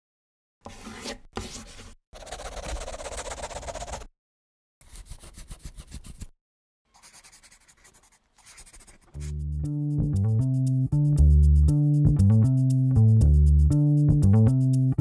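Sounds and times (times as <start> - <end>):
pencil scribbling on paper: 0.7 - 4.1, 4.8 - 6.3, 6.9 - 9.3.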